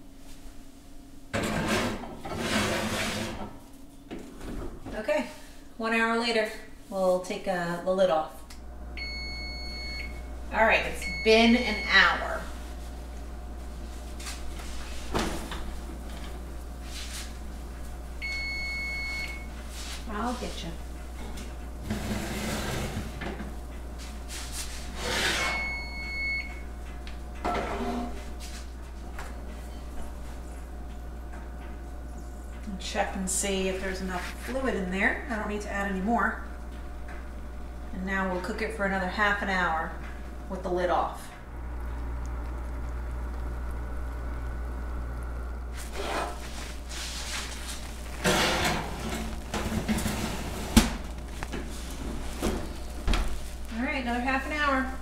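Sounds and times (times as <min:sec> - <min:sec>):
pot scraping on metal rack: 0:01.3 - 0:03.6, 0:21.8 - 0:23.3, 0:24.9 - 0:25.6, 0:27.4 - 0:28.3, 0:45.8 - 0:52.8
metal scraping and clatter: 0:01.4 - 0:03.5, 0:48.1 - 0:51.0.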